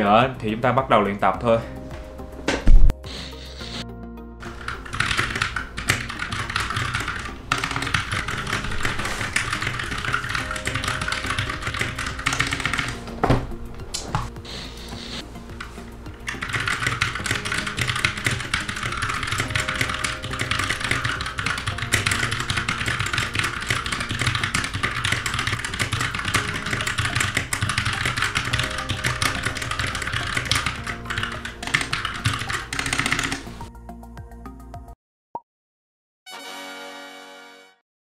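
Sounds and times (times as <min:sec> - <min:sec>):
background music: 0:00.0 - 0:35.0, 0:36.3 - 0:37.8
keyboard typing clicks: 0:04.4 - 0:13.0, 0:14.0 - 0:33.5.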